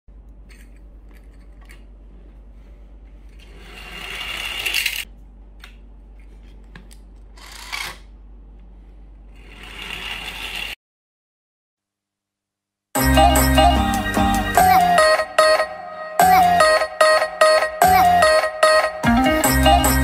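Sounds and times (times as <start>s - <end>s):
toy train motor whirring: 3.4s - 5.1s, 7.4s - 8.0s, 9.4s - 10.8s
toy train wheels on tabletop: 3.4s - 5.1s, 7.4s - 8.1s, 9.3s - 10.8s.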